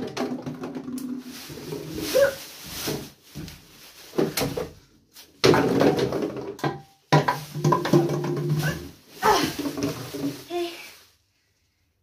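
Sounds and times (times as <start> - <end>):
plastic bin bag rustling: 0.9 - 11.2
bottles clattering: 4.0 - 10.6.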